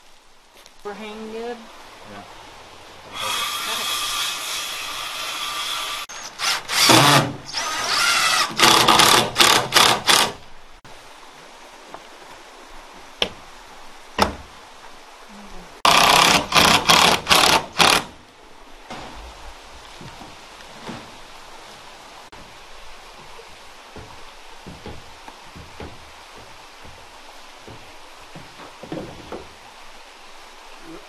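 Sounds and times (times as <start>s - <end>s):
power drill driving fasteners: 3.2s - 10.4s, 15.9s - 18.1s.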